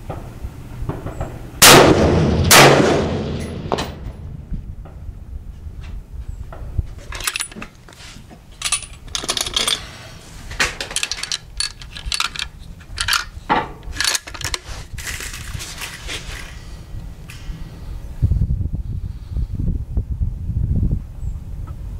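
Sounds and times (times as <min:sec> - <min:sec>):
steady low rumble: 0:00.0 - 0:21.9
rifle bolt and cartridge clicks: 0:10.7 - 0:14.6.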